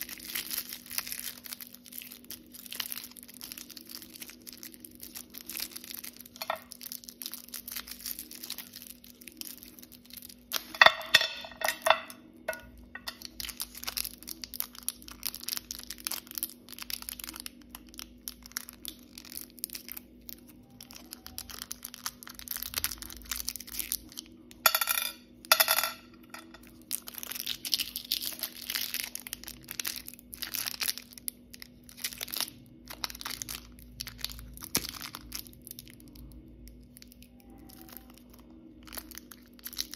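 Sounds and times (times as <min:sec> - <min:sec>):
wrapper rasping rips: 0:00.0 - 0:10.7, 0:13.2 - 0:24.3, 0:26.8 - 0:39.9
plastic wrappers crinkling: 0:00.0 - 0:24.9, 0:25.5 - 0:39.9.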